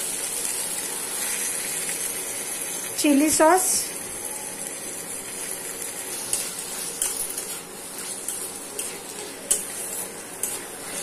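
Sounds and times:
sizzle of frying in oil: 0:00.0 - 0:11.0
metal spatula scraping a pan: 0:06.2 - 0:11.0.

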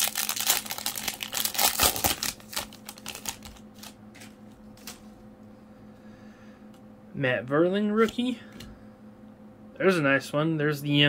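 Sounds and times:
foil wrapper crinkling: 0:00.0 - 0:05.0.

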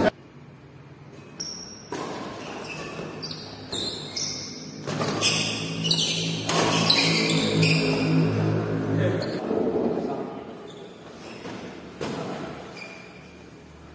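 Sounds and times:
racket hitting shuttlecock: 0:01.3 - 0:07.6.

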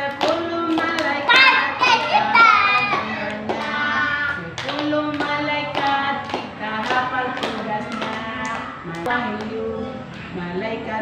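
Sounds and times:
hands clapping: 0:00.1 - 0:09.5
children singing a chant: 0:00.3 - 0:09.1.

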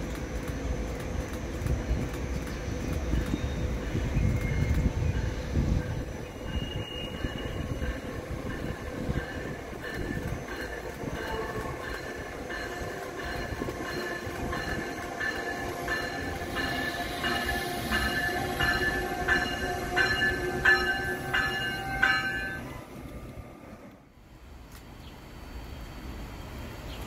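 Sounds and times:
train passing: 0:00.0 - 0:27.0
steady high tones: 0:03.1 - 0:22.9.

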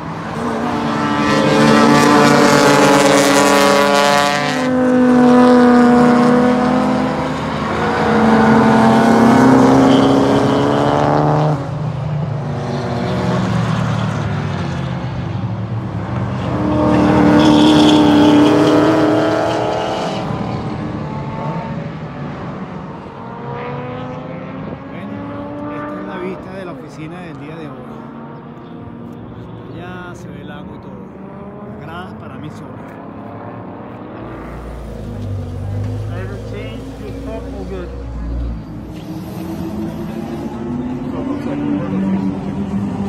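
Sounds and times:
race car engines passing: 0:00.0 - 0:43.0.

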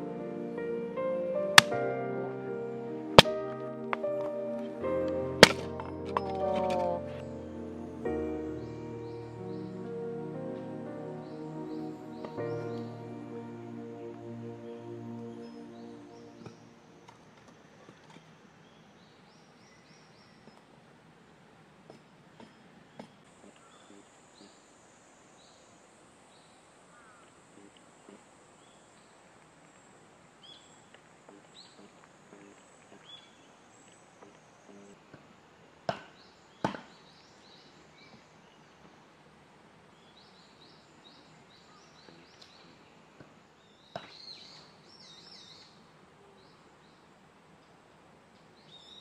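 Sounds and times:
small birds chirping: 0:40.0 - 0:43.0, 0:43.6 - 0:49.0.

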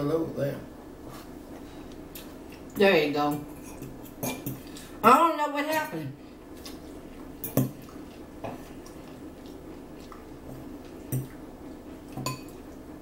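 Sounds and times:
forks clinking on plates: 0:03.3 - 0:04.7, 0:07.4 - 0:07.8, 0:12.2 - 0:12.6.

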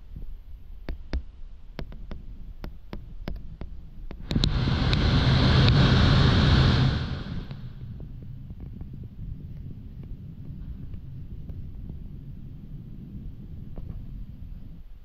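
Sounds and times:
aircraft cabin rumble: 0:04.2 - 0:08.2
loud rushing noise with low hum: 0:04.2 - 0:08.2.

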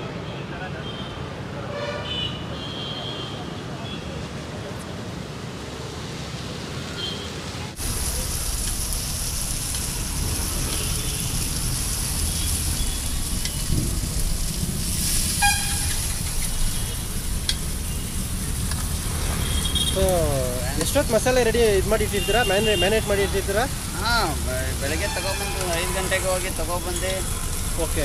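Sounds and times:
road traffic rumble: 0:00.0 - 0:28.0
fish frying on a griddle: 0:07.8 - 0:28.0
short horn toot: 0:15.4 - 0:16.0.

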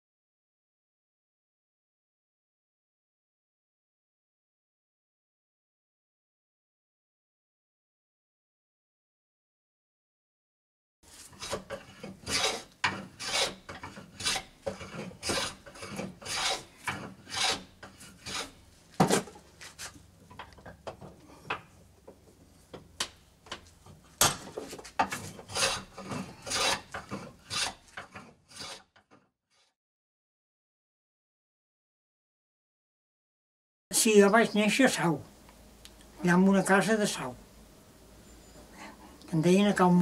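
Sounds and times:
hand tool rasping on wood: 0:11.1 - 0:18.6, 0:25.0 - 0:28.9.

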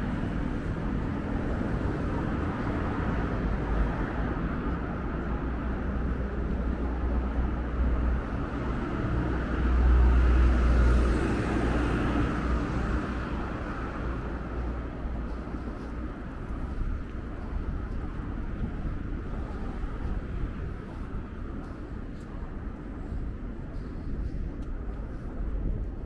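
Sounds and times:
low hum of passing traffic: 0:00.0 - 0:26.0
vehicle rumble: 0:00.0 - 0:26.0.

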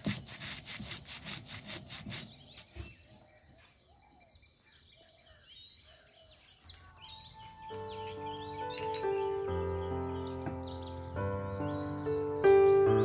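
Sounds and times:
stone roller rasping on grinding stone: 0:00.0 - 0:02.6.

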